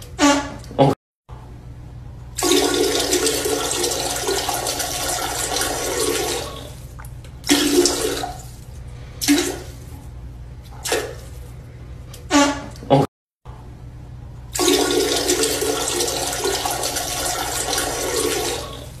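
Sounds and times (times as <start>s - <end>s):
toilet flushing: 2.4s - 9.9s, 14.5s - 19.0s.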